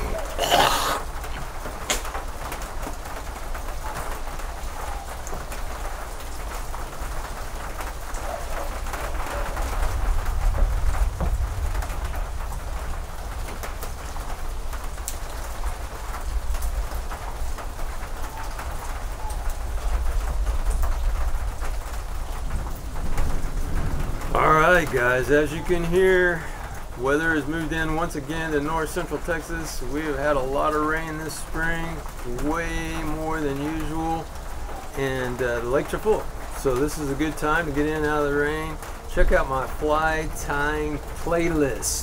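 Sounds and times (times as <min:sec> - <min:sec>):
steady rain falling: 0:00.0 - 0:42.0.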